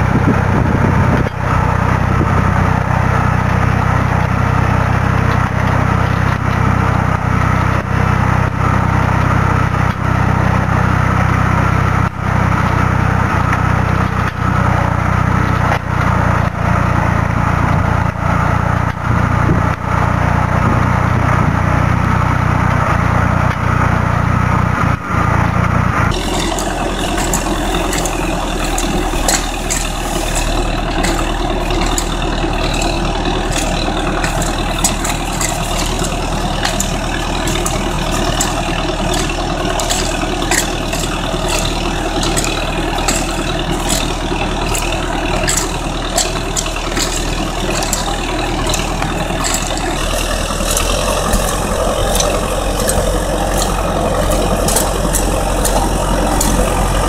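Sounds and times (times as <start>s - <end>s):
rough low tractor engine: 0.0s - 57.0s
tractor engine running: 0.0s - 57.0s.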